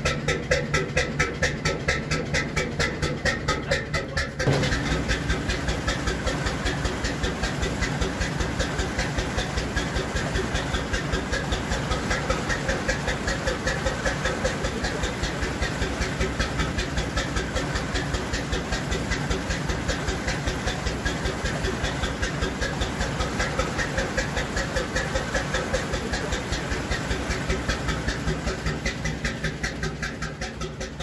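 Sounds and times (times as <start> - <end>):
churning wake water: 0.0 - 31.0
slow diesel engine exhaust beating: 0.0 - 31.0.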